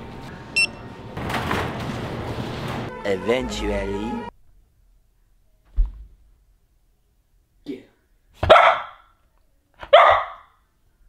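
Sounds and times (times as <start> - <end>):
dog barking: 8.4 - 9.1, 9.8 - 10.6.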